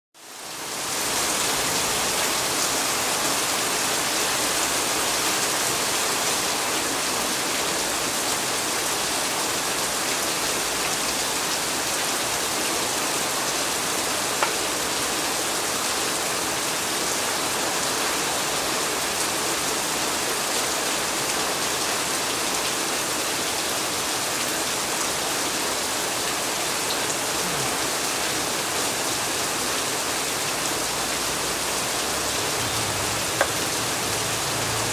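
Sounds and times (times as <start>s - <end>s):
heavy rain: 0.2s - 34.9s
sharp tap: 33.4s - 33.6s.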